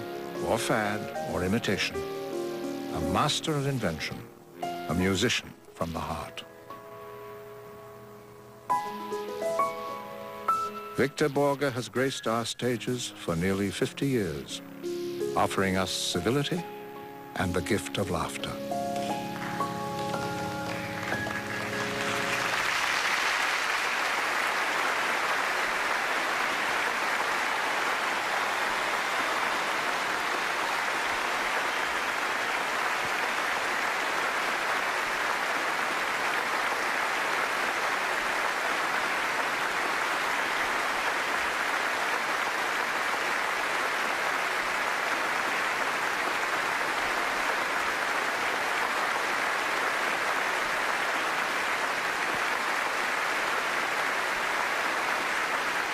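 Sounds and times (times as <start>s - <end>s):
audience applauding: 17.5s - 55.9s.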